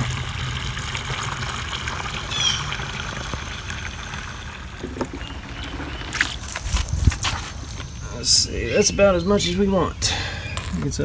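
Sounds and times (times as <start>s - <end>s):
hose water gushing into jug: 0.0s - 8.1s.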